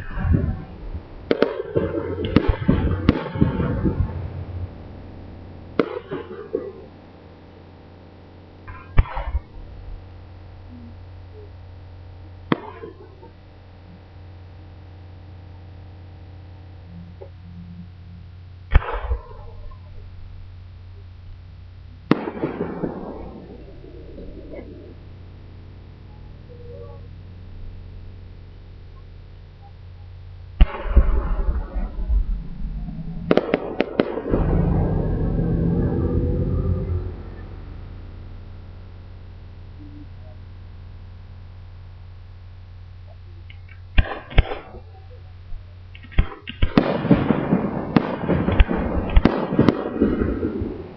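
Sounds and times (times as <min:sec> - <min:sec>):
firework crackling: 0:00.0 - 0:50.9
low rumble: 0:00.0 - 0:50.9
steady low hum: 0:00.0 - 0:50.9
firework bang with echo: 0:01.3 - 0:04.2, 0:05.8 - 0:06.8, 0:08.7 - 0:09.5, 0:18.7 - 0:19.5, 0:22.1 - 0:23.7, 0:30.6 - 0:32.2, 0:33.3 - 0:35.8, 0:44.0 - 0:44.8, 0:46.1 - 0:50.9.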